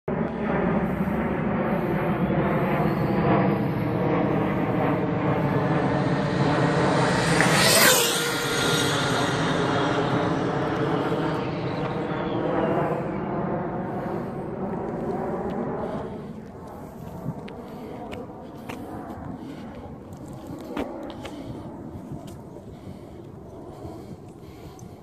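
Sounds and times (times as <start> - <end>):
electric motor whine of rc car: 6.2 - 11.9.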